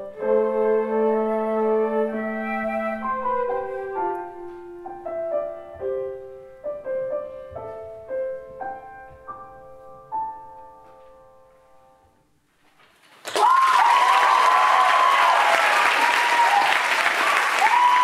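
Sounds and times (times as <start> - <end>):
flutes and trombone chord: 0.0 - 4.5
grand piano notes and chords: 0.0 - 12.5.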